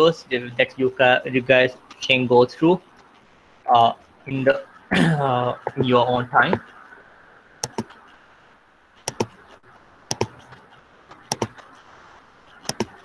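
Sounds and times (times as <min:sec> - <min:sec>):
faint room hiss: 0:00.0 - 0:13.0
computer clicks: 0:07.6 - 0:08.1, 0:09.0 - 0:11.7, 0:12.5 - 0:13.0.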